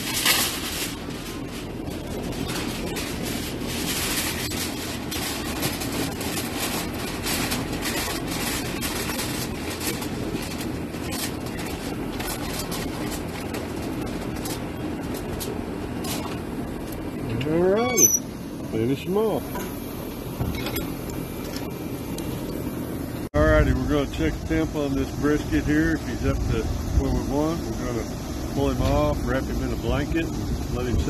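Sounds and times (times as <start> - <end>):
aluminium foil crinkling: 0.0 - 17.1
low background rumble: 0.0 - 31.0.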